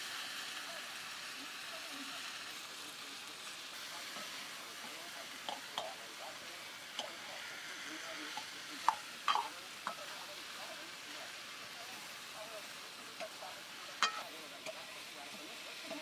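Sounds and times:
potatoes sizzling in oil: 0:00.0 - 0:16.0
ladle scraping metal pan: 0:14.0 - 0:14.8.

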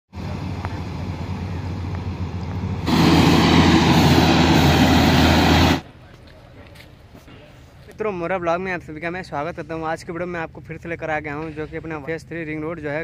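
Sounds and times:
diesel engine running: 0:00.1 - 0:05.9.

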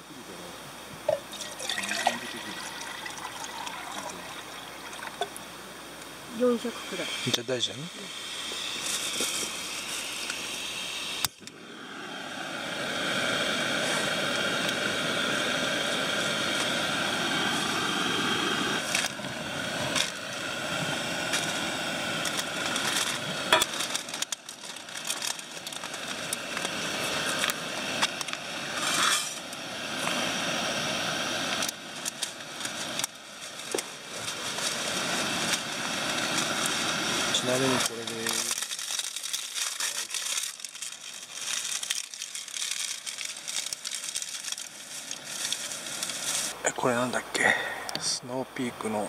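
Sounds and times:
gas stove burner hissing: 0:04.4 - 0:39.5.

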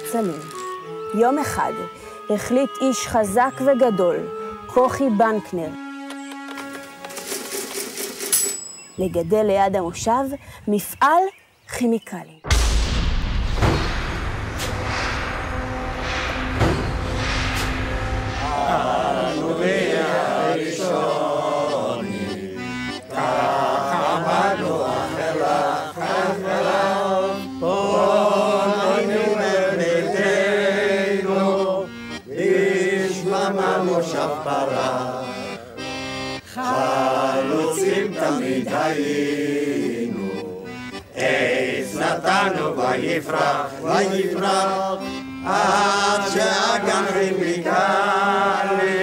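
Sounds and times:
instrumental accompaniment: 0:00.0 - 0:09.2, 0:12.5 - 0:49.0
group singing in unison: 0:17.6 - 0:49.0.

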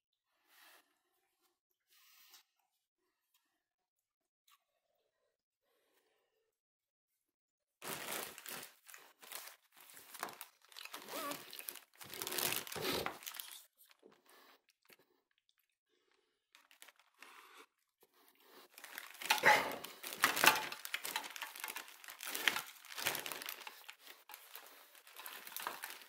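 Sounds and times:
plastic packaging crinkling: 0:07.8 - 0:14.0, 0:16.5 - 0:17.5, 0:18.6 - 0:26.0.

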